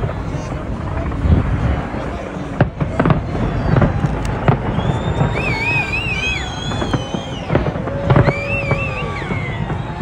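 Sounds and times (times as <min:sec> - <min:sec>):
fireworks bangs: 0:00.0 - 0:10.0
firework whistles: 0:02.9 - 0:10.0.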